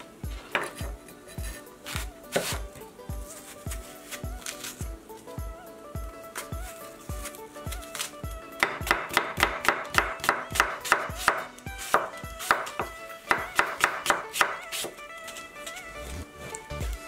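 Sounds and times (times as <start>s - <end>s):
knife slicing apple on wooden board: 0.3s - 4.9s, 7.1s - 15.0s.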